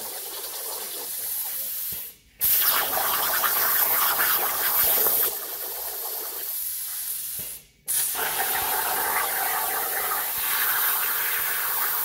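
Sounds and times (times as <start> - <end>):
plasma torch cutting metal: 7.9 - 12.0.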